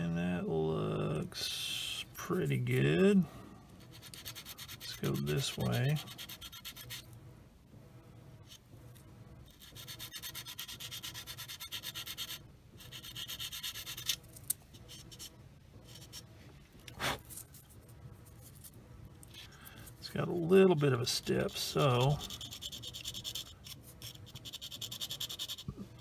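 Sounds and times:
sanding stick rubbing on plastic: 3.8 - 7.1, 9.5 - 14.2, 21.2 - 25.7.

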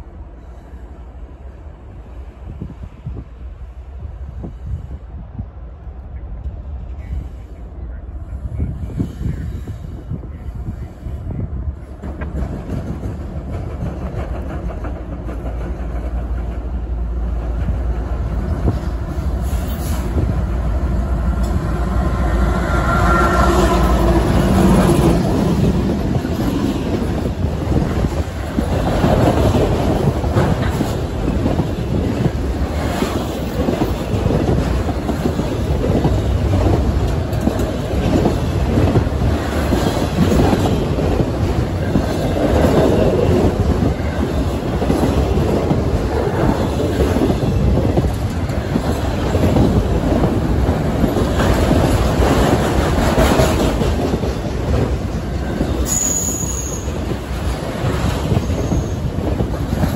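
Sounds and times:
diesel locomotive engine rumble: 0.0 - 59.9
wheels clacking over rail joints: 12.0 - 23.0.

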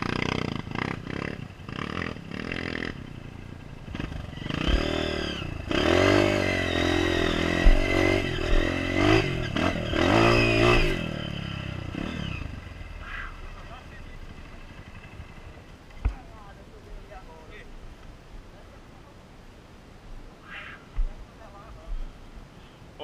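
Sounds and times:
dirt bike engine revving: 0.0 - 15.6
bike knocking on rough ground: 7.6 - 8.7.

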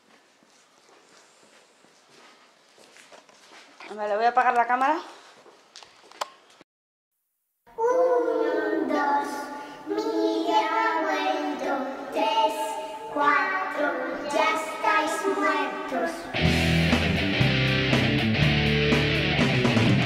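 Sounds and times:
child singing: 7.7 - 16.4.

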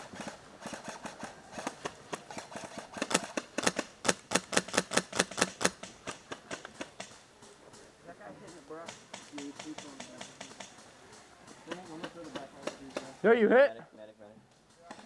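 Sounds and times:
airsoft gun shots: 2.9 - 7.2.

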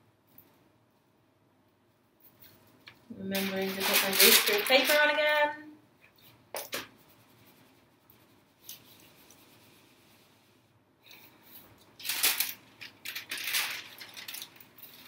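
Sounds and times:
paper and plastic rustling: 2.8 - 5.5, 11.4 - 15.0.

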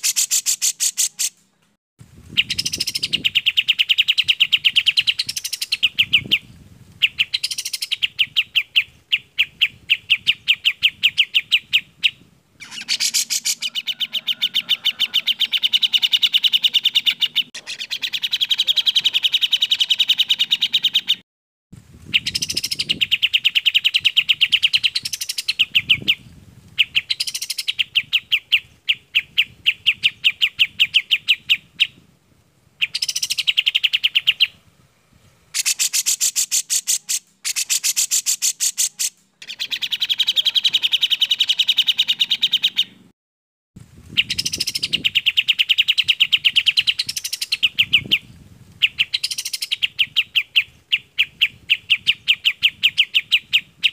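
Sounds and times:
songbirds singing rapid high notes: 0.0 - 1.4, 2.3 - 21.2, 22.0 - 32.0, 32.8 - 34.6, 35.4 - 43.1, 44.1 - 53.9
sweeping bird calls: 0.0 - 1.4, 2.3 - 21.2, 22.1 - 32.0, 32.8 - 34.6, 35.3 - 43.0, 44.1 - 53.9.

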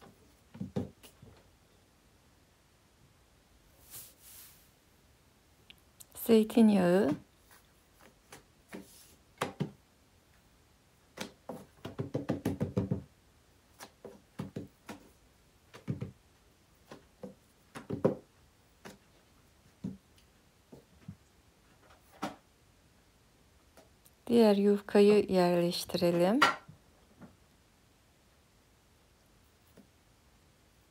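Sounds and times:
brief soft hiss: 3.8 - 4.8
hands patting dough: 11.1 - 21.2.

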